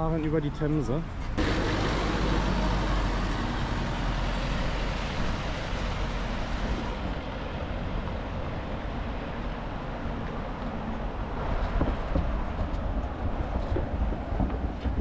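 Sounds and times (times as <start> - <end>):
road traffic: 0.0 - 15.0
bus passing: 1.0 - 15.0
wind on microphone: 4.6 - 15.0.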